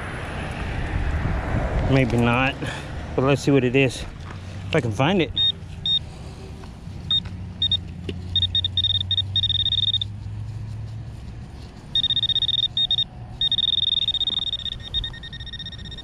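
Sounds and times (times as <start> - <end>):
metal detector beeping: 5.3 - 6.0, 7.1 - 10.1, 11.9 - 16.0.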